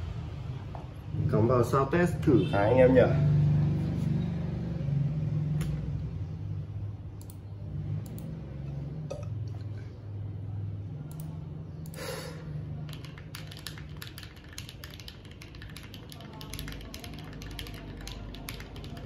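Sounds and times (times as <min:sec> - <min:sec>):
mechanical keyboard typing: 0:12.8 - 0:19.0.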